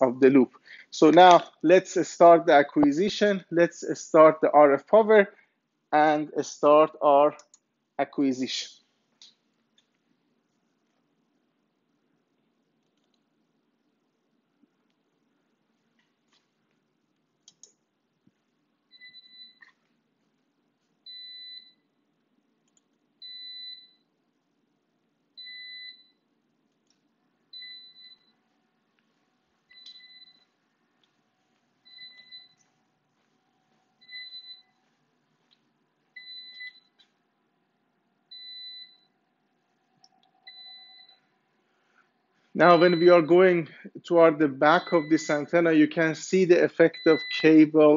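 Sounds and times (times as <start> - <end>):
faint clicks: 12.4 - 13.3.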